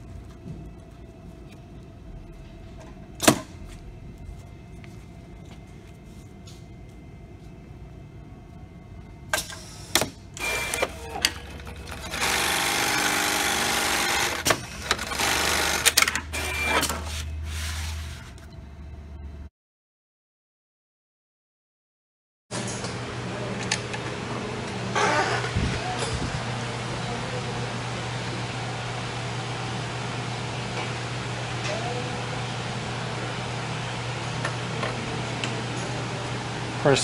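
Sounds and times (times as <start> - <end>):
sewing machine stitching: 10.4 - 16.8.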